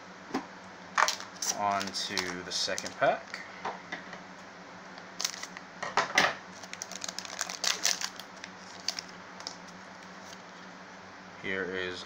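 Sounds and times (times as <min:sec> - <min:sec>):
foil pack crinkling and tearing: 0:01.0 - 0:03.4, 0:05.2 - 0:05.6, 0:06.5 - 0:10.4.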